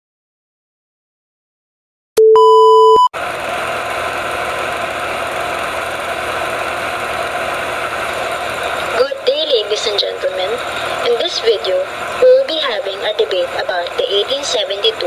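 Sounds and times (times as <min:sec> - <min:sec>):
loud electronic beep: 0:02.2 - 0:03.1
film projector whirring: 0:03.2 - 0:15.0.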